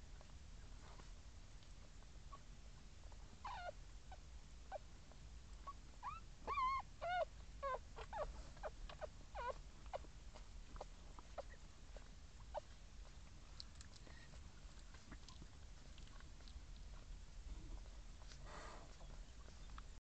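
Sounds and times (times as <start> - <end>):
faint steady hum: 0.0 - 20.0
puppies squeaking: 3.4 - 3.8, 5.6 - 13.2, 17.8 - 19.9.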